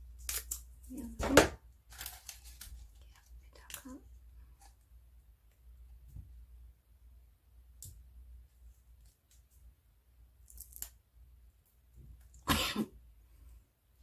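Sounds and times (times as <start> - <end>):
paper rustling and crinkling: 1.3 - 3.7.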